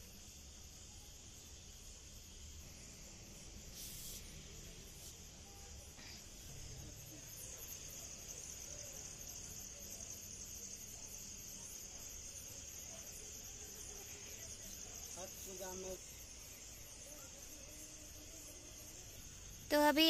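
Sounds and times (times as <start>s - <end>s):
crickets trilling: 0.0s - 20.0s
higher cricket chirp: 0.0s - 20.0s.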